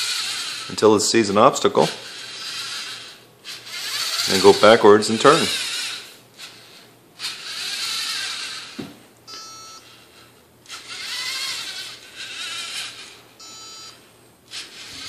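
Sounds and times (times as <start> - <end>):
servo motors whirring: 0.0 - 8.9, 9.9 - 13.9, 14.5 - 15.0
short electronic beep: 9.3 - 9.9, 13.4 - 14.0.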